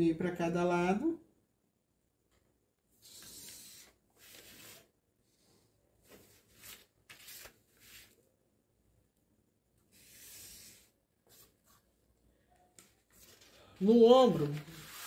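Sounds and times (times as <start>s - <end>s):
marker drawing on paper: 3.0s - 4.9s, 9.8s - 11.9s
plastic ruler rustling on paper: 3.0s - 4.9s, 6.0s - 8.2s, 12.8s - 15.0s.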